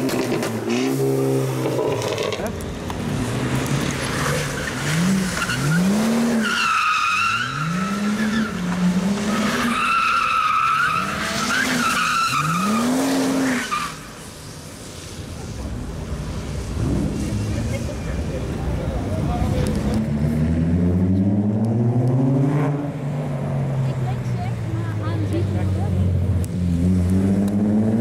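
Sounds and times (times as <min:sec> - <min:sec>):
tyres squealing: 0:04.1 - 0:14.1
car engine revving: 0:16.5 - 0:28.0.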